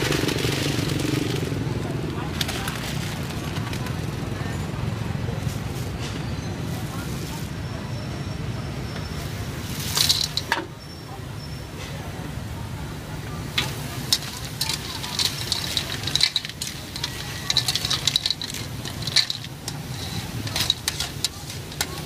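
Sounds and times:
sizzling: 0:09.1 - 0:10.8, 0:13.2 - 0:22.0
spatula scraping a wok: 0:09.2 - 0:10.6, 0:13.5 - 0:22.0
shells clattering into a wok: 0:09.6 - 0:10.7, 0:13.5 - 0:22.0
shells rattling: 0:09.8 - 0:10.5, 0:13.6 - 0:22.0.

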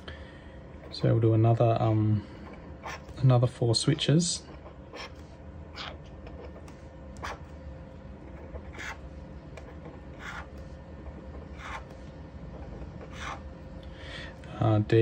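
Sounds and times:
low steady hum: 0:00.0 - 0:15.0
felt-tip pen scratching on paper: 0:01.8 - 0:03.2, 0:04.4 - 0:07.5, 0:08.2 - 0:13.5.

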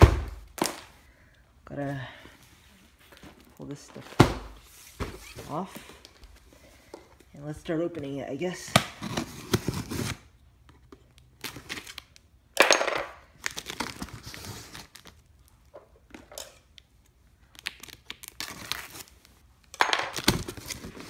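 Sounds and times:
cardboard flaps scraping and rustling: 0:04.0 - 0:05.8
packing tape being slit and pulled: 0:08.8 - 0:10.3, 0:11.4 - 0:12.2, 0:13.4 - 0:15.2, 0:17.4 - 0:21.0.

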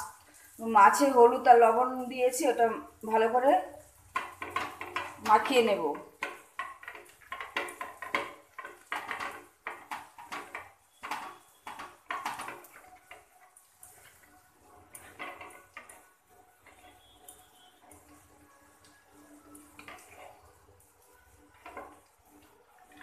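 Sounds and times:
clinks and taps on metal plate: 0:06.2 - 0:12.8.

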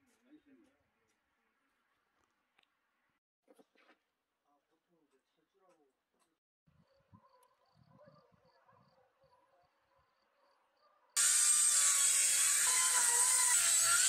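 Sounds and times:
electric hand planer shaving wood: 0:11.2 - 0:14.0.

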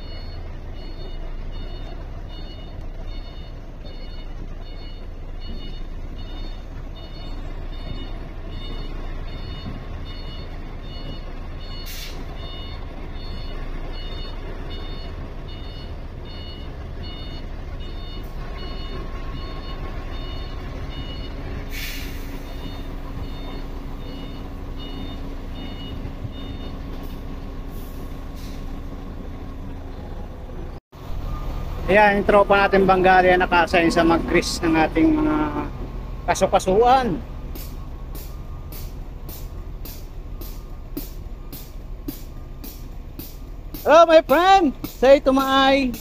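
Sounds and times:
diesel engine running: 0:00.0 - 0:46.0
truck reversing alarm beeps: 0:00.0 - 0:46.0
air brakes hissing: 0:11.7 - 0:12.4, 0:21.6 - 0:23.3, 0:27.0 - 0:29.1, 0:37.2 - 0:43.9.

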